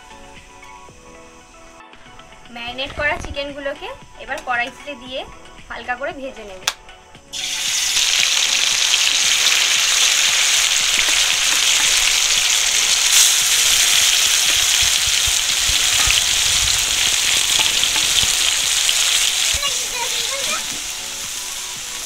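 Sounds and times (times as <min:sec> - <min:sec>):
chicken sizzling in oil: 0:07.3 - 0:22.0.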